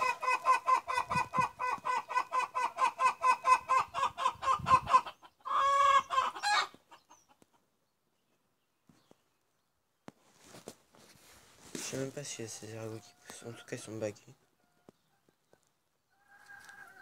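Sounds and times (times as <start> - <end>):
chicken squawk: 0.0 - 7.4, 16.1 - 17.0
chicken clucking: 0.0 - 7.7.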